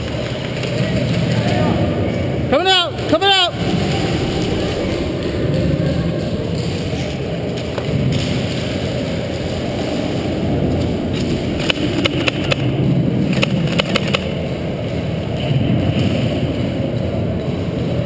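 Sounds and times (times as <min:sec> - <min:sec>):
sharp clacks: 0:09.6 - 0:14.5.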